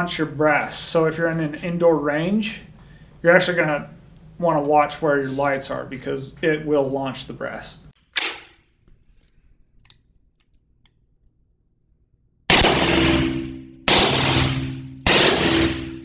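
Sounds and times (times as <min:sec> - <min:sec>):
suppressed gunshots: 0:12.5 - 0:13.3, 0:13.9 - 0:15.8.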